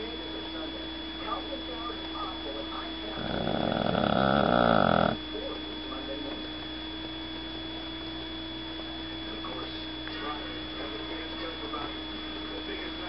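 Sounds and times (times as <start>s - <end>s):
electrical hum: 0.0s - 13.0s
rattling snore: 3.1s - 5.2s.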